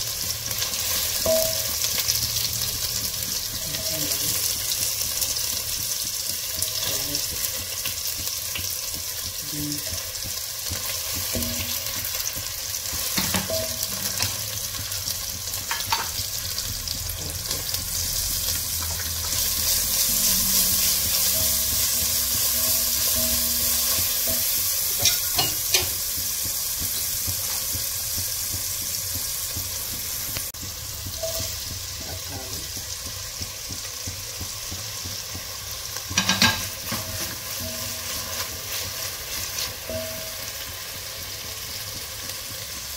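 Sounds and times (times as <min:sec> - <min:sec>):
vegetables sizzling in oil: 0:00.0 - 0:42.9
utensil clicking against pan: 0:04.5 - 0:17.6, 0:21.3 - 0:40.1.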